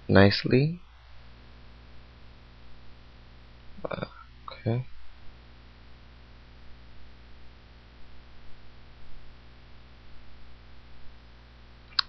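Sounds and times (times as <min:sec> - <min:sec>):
background hiss: 0:00.0 - 0:12.0
low electrical hum: 0:00.0 - 0:12.0.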